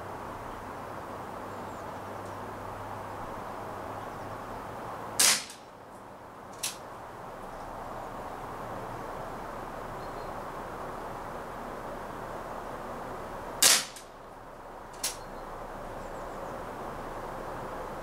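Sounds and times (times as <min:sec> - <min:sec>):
air pistol shot crack: 0:05.2 - 0:05.6, 0:13.6 - 0:14.1.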